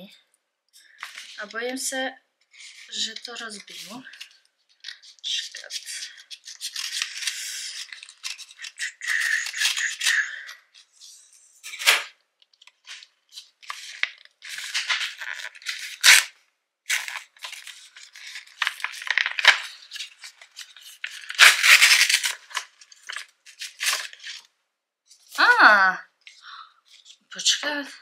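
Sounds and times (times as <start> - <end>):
paper envelope tearing: 4.9 - 10.9, 12.8 - 24.5.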